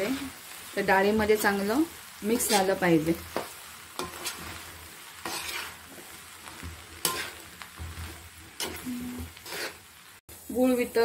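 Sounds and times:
light sizzle: 0.0 - 11.0
spatula scraping a pan: 2.2 - 10.0.

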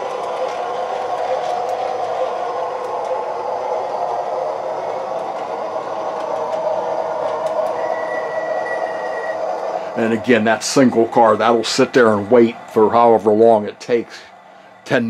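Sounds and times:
model streetcar whirring: 0.0 - 15.0
thin high tone: 1.0 - 15.0.

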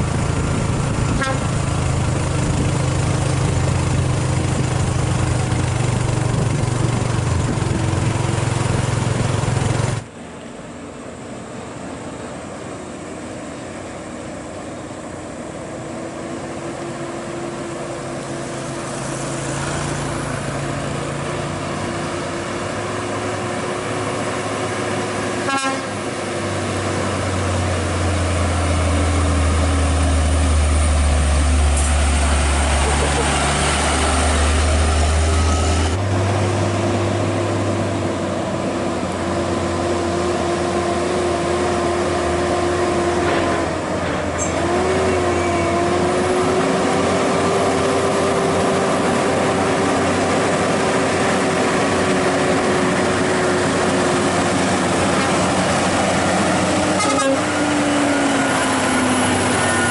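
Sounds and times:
diesel trucks labouring uphill: 0.0 - 59.9.

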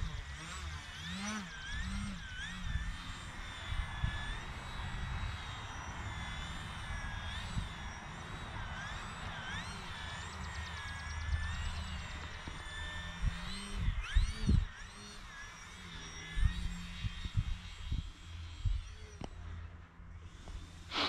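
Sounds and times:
model plane motor and propeller whining: 0.0 - 21.0
wind rumbling on microphone: 1.7 - 8.8, 11.3 - 14.8, 16.4 - 19.2.

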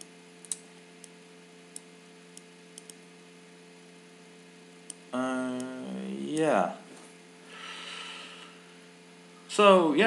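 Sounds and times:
computer mouse clicking: 0.0 - 3.0, 4.8 - 5.0
faint electrical hum: 0.0 - 10.0.

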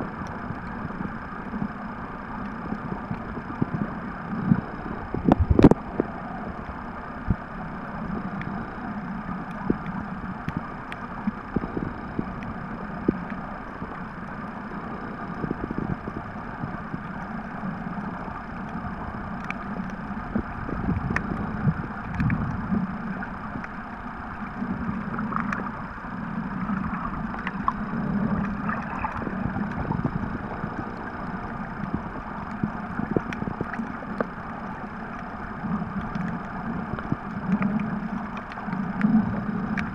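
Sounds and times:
muffled underwater rumble: 0.0 - 39.9
faint clicks: 8.3 - 8.6, 9.3 - 14.4, 16.9 - 23.8, 24.4 - 25.8, 26.6 - 30.2, 31.0 - 39.9.

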